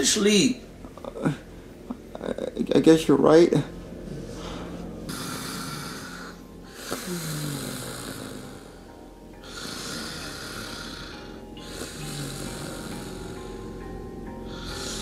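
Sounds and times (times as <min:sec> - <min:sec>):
person snoring: 0:04.1 - 0:15.0.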